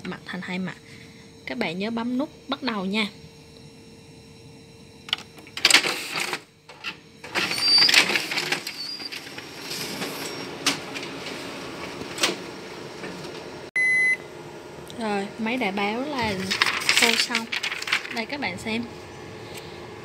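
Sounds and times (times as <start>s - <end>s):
photocopier running: 0.0s - 20.0s
photocopier clicks: 5.1s - 12.4s
short electronic beep: 13.8s - 14.2s.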